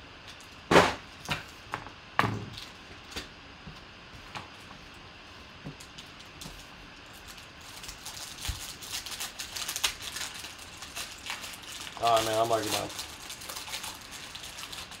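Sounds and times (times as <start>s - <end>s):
foil wrapper tearing and crinkling: 5.8s - 15.0s.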